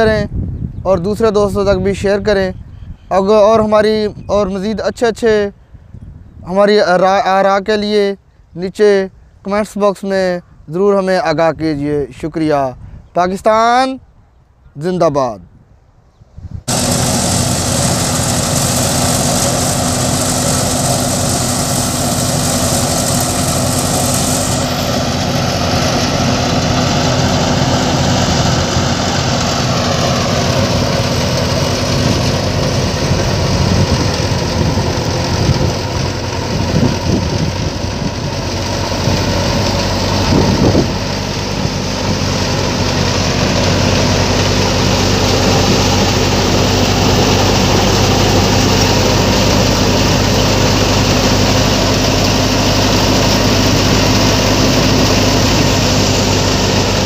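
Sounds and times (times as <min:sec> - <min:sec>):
thresher machine droning: 0:16.7 - 0:57.0.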